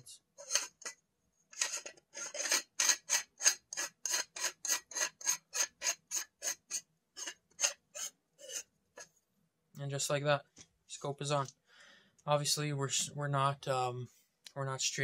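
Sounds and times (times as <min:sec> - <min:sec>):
metal screw threads rasping: 0:00.4 - 0:09.1.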